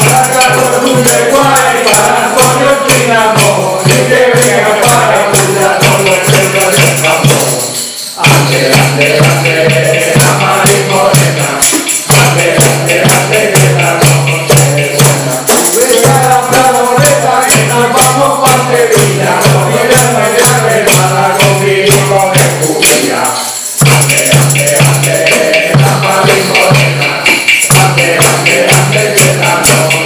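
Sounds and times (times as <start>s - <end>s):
men singing a carol: 0.0s - 30.0s
tambourines shaken and struck: 0.0s - 30.0s
steady low beat: 8.2s - 30.0s.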